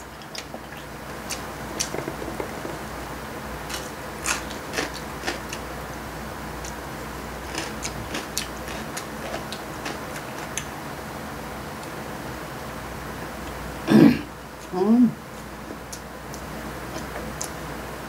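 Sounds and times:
low room hum: 0.0s - 18.0s
chewing crunches: 3.6s - 5.7s, 7.4s - 10.7s.

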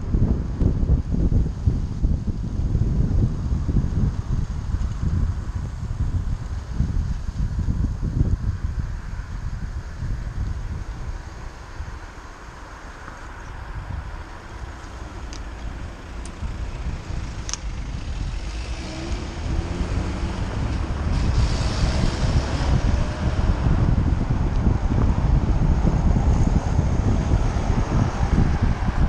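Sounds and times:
traffic on wet road: 0.0s - 29.0s
wind buffeting microphone: 0.0s - 29.0s
car engine speeding up: 15.0s - 29.0s.

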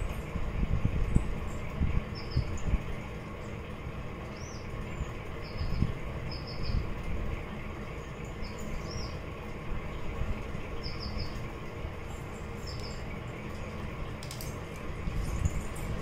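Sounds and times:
small bird chirping: 4.3s - 6.8s, 10.8s - 11.4s, 12.2s - 13.2s.

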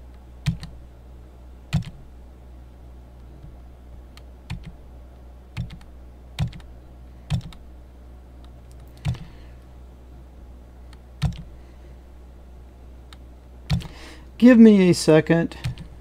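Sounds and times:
steady low hum: 0.0s - 16.0s
keyboard key clicks: 5.6s - 6.7s, 7.3s - 7.6s, 11.2s - 11.5s, 13.1s - 13.9s.

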